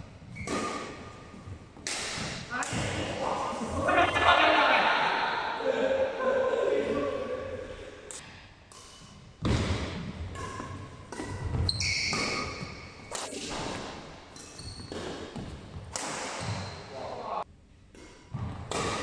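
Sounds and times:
shoe squeaks: 0.3s - 0.9s, 11.5s - 13.0s, 14.4s - 15.0s
rackets hitting shuttlecock: 0.3s - 1.2s, 1.8s - 3.2s, 8.1s - 16.7s, 17.9s - 19.0s.

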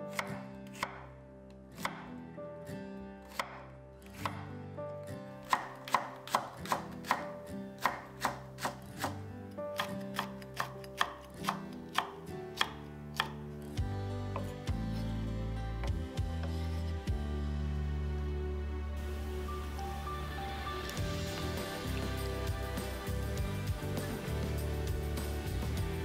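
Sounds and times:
soft background music: 0.0s - 26.0s
knife chopping on wooden board: 0.1s - 1.1s, 5.5s - 9.2s, 9.8s - 13.4s.

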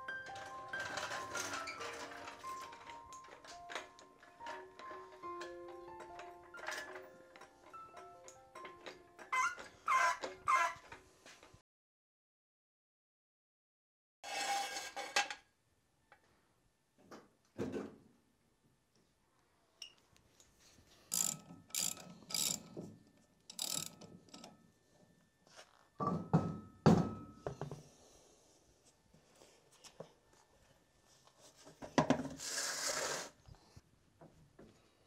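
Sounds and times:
floor jack clicking and clunking: 0.2s - 11.5s, 21.1s - 24.6s.

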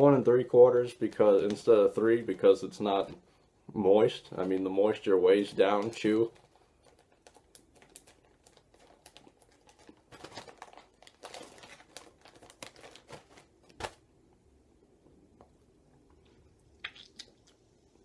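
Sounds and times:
plastic pouch crinkling: 4.2s - 14.1s.

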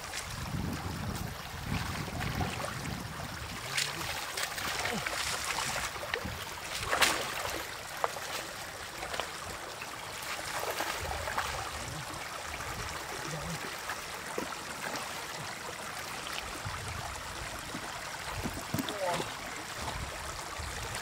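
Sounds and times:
water lapping and dribbling: 0.0s - 21.0s
water splashing: 0.0s - 21.0s.

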